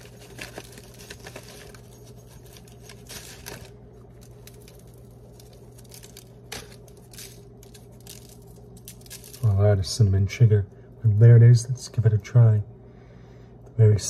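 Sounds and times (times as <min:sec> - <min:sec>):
pastry crackling and tearing: 0:00.0 - 0:09.6
steady low hum: 0:00.0 - 0:14.0.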